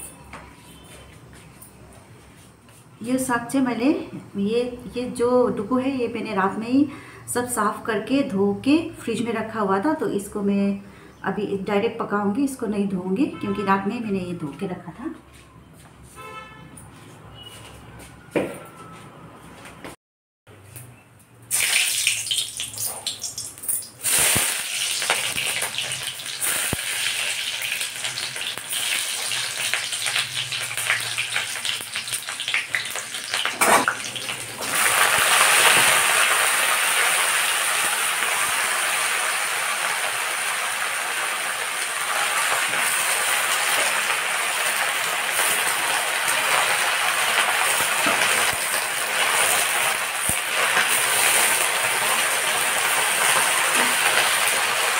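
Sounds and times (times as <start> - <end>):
hot oil sizzling: 21.4 - 54.9.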